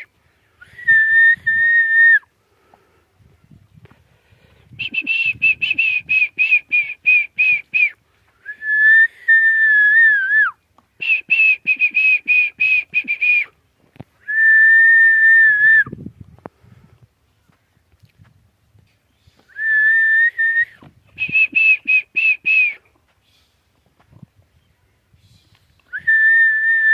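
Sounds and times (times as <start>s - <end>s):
person whistling: 0.6s - 2.2s, 4.8s - 13.5s, 14.3s - 15.9s, 19.5s - 22.8s, 25.9s - 26.9s.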